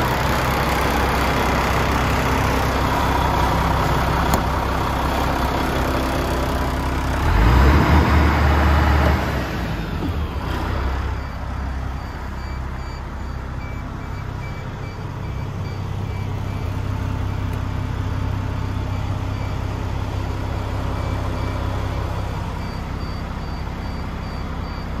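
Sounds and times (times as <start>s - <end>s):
truck diesel engine idling: 0.0s - 25.0s
faint high-pitched beeping: 11.0s - 17.6s, 18.5s - 25.0s.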